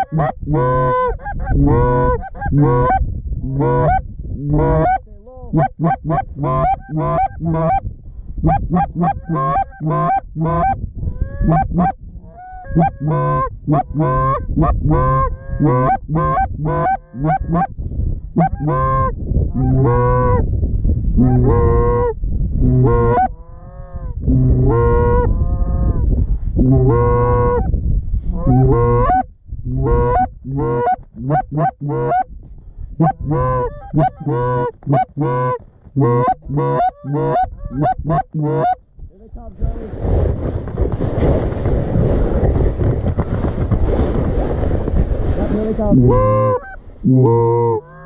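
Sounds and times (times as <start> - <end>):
geese honking: 0.0 - 3.0, 3.6 - 5.0, 5.6 - 7.8, 8.5 - 10.8, 11.5 - 17.7, 18.4 - 20.4, 28.4 - 29.2, 29.8 - 32.3, 33.0 - 38.8, 45.9 - 48.0.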